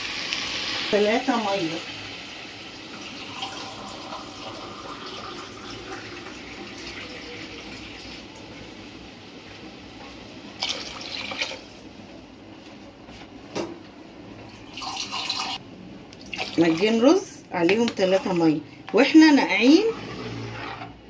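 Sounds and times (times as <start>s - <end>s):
water pouring into a pot: 2.0s - 8.2s, 10.6s - 11.6s, 14.6s - 15.6s.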